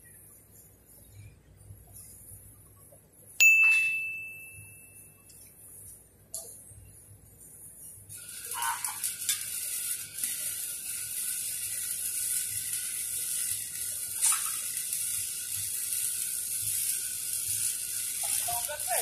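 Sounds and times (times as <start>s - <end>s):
welding arc crackling sizzle: 0.0s - 19.0s
sharp welding pops: 7.4s - 19.0s.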